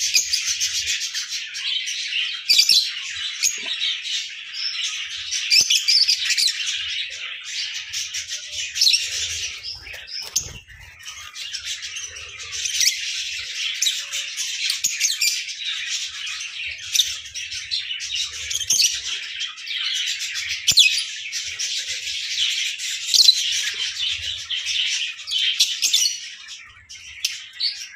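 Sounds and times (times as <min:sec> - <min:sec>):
birds chirping: 0:00.0 - 0:27.9.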